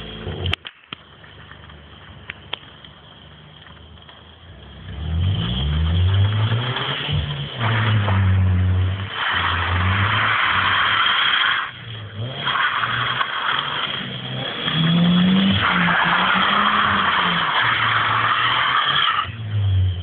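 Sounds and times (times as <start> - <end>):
car engine revving hard: 4.7 - 20.0
tyres squealing: 6.4 - 19.8.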